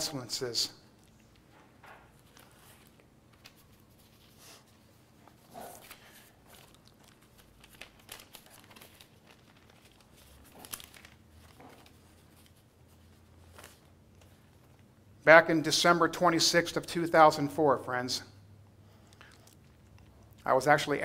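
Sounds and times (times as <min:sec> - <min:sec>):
faint rustling and crinkling: 0:00.9 - 0:15.0.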